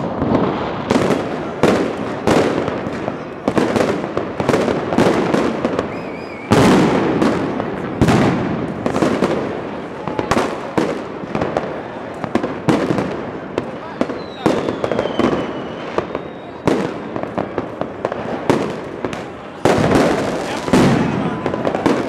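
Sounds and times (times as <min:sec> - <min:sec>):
fireworks bangs and crackles: 0:00.0 - 0:22.0
loud firework booms: 0:00.0 - 0:22.0
warbling firework whistle: 0:05.7 - 0:06.8, 0:14.1 - 0:17.0.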